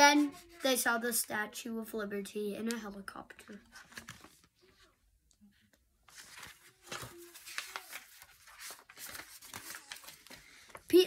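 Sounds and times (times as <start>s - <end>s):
book pages turning: 2.7s - 4.9s, 5.7s - 11.0s.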